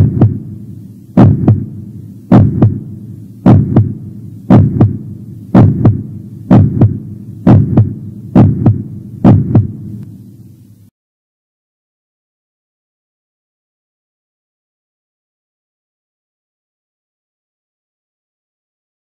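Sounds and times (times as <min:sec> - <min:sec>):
heartbeat thumps: 0:00.0 - 0:00.6, 0:01.2 - 0:10.0.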